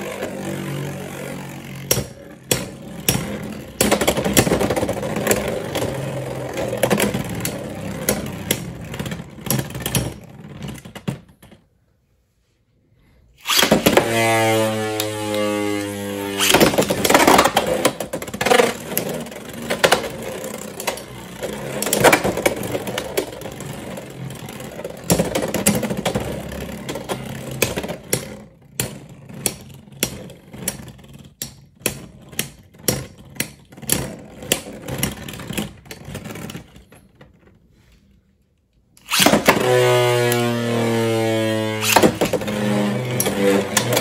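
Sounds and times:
spinning tops whirring: 13.4 - 27.8, 39.0 - 44.0.

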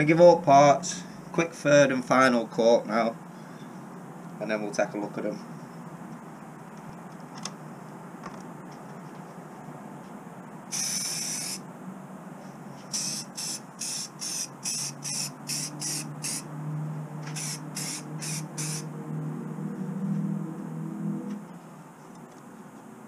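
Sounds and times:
aerosol spray can hissing: 10.7 - 11.6, 12.9 - 16.4, 17.4 - 18.8.

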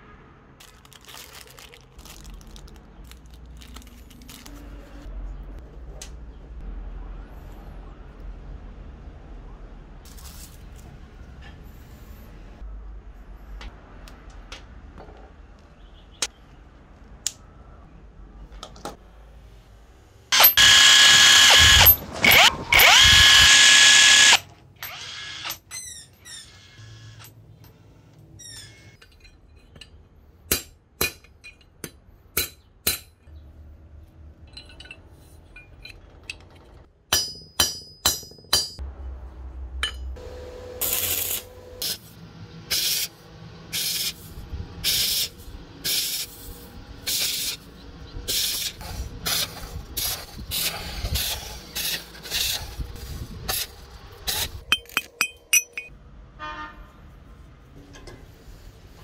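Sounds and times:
arc welding crackling bursts: 40.8 - 42.1
metallic clinks and taps: 54.7 - 56.0.

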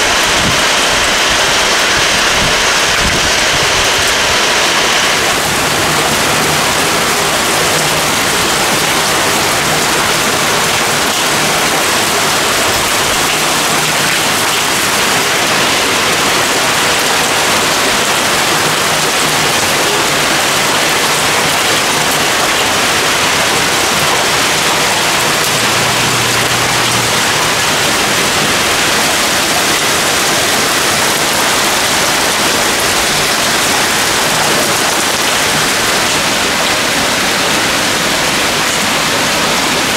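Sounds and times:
heavy rain pouring: 0.0 - 39.9.

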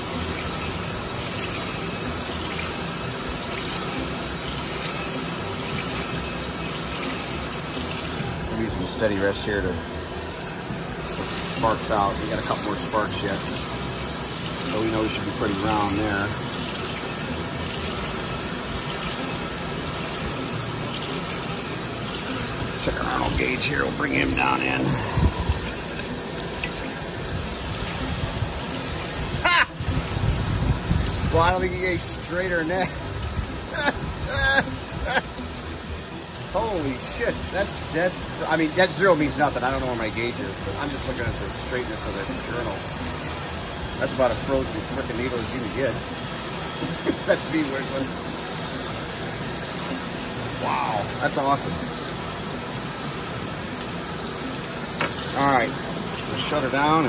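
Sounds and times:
crankshaft grinding machine running: 0.0 - 29.2
coolant pouring and splashing: 0.0 - 57.0.

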